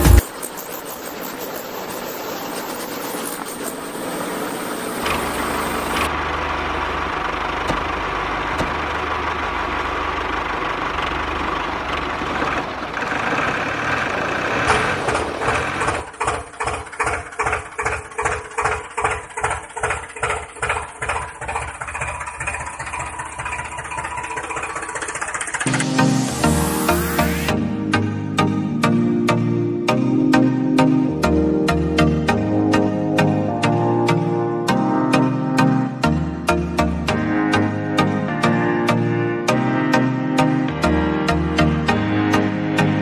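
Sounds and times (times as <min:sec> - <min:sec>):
tractor engine chugging: 0:00.0 - 0:27.5.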